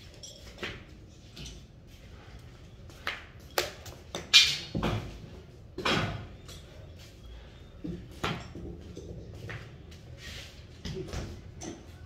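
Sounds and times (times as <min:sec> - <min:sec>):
tools clattering on concrete floor: 0:00.0 - 0:01.8, 0:03.4 - 0:05.2, 0:05.8 - 0:09.8, 0:10.8 - 0:12.0.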